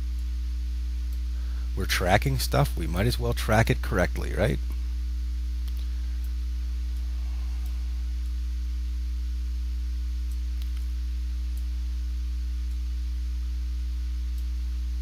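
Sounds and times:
low electrical hum: 0.0 - 15.0
faint clicks: 5.6 - 8.4, 10.2 - 11.7.

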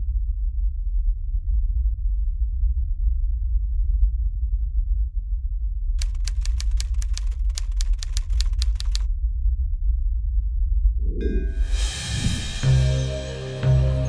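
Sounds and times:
steady low rumble: 0.0 - 14.0
typewriter keystroke clicks: 6.0 - 9.1.

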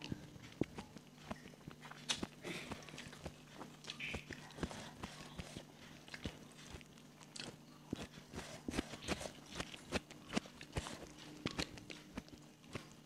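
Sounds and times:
crackles crunches and chewing: 0.0 - 13.0
faint low hum: 0.0 - 13.0
fingers picking at food: 0.0 - 13.0.

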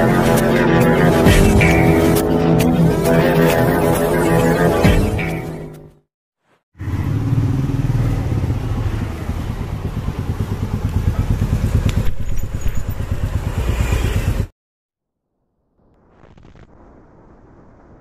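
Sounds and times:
single-cylinder engine running: 7.1 - 14.5.

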